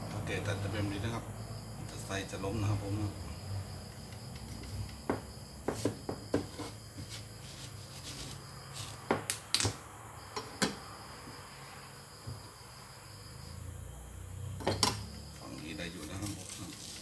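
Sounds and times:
high thin insect trill: 0.0 - 17.0
knife chopping on wooden board: 5.0 - 7.2.

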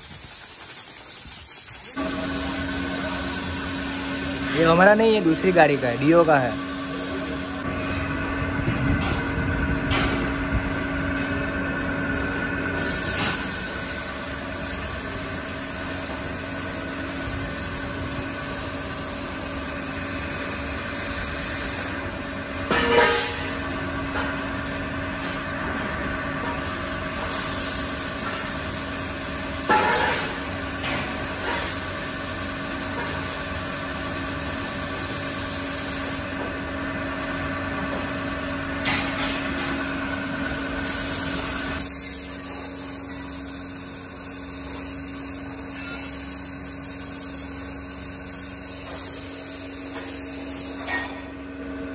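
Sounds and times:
spray gun hissing: 0.0 - 2.2, 6.5 - 7.7, 12.8 - 15.0, 18.1 - 22.0, 27.3 - 29.2, 40.8 - 51.0
machinery hum: 1.9 - 47.4.

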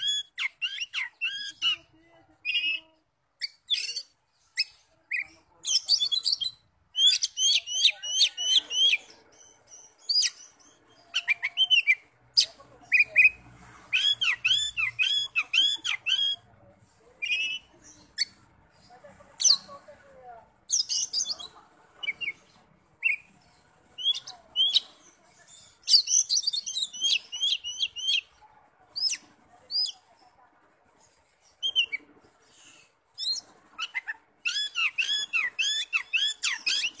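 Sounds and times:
bird singing: 0.0 - 16.4.

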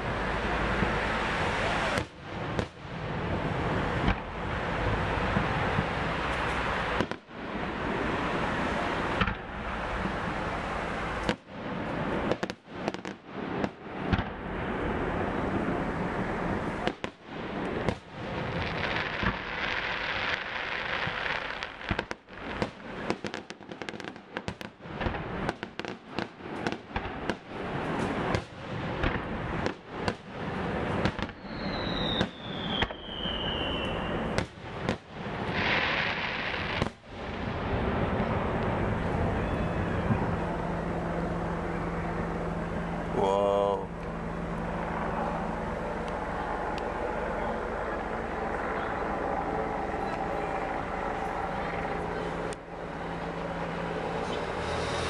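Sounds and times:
fireworks crackling: 0.0 - 55.0
falling whistle: 31.4 - 34.4.

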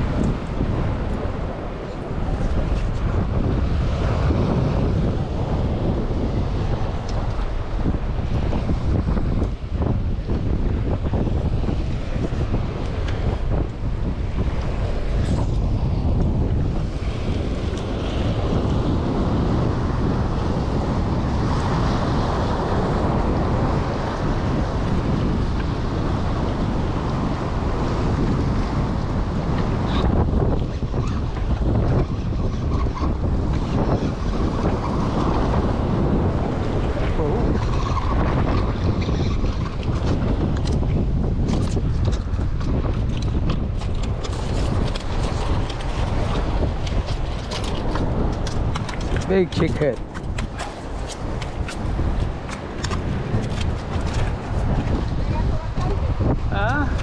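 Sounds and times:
wind noise on microphone: 0.0 - 57.0
waves splashing against rocks: 21.5 - 57.0.

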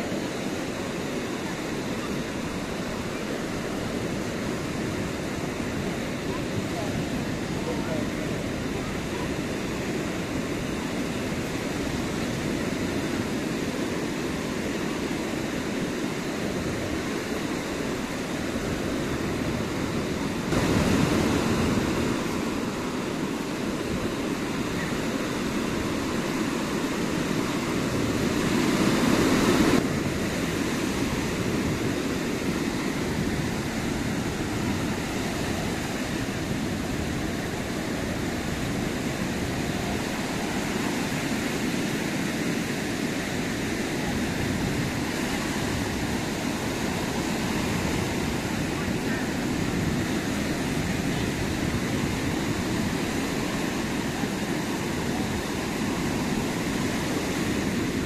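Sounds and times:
small waves washing on sand: 0.0 - 58.0.

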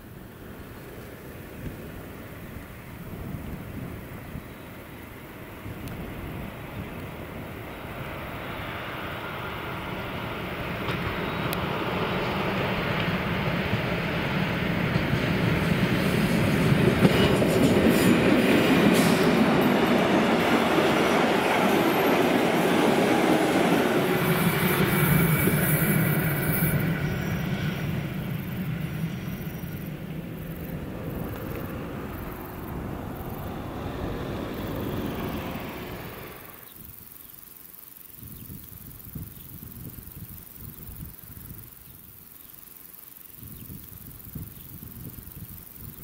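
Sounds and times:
diesel locomotive engine working hard: 0.0 - 37.0
coaches rolling by: 8.7 - 36.6.

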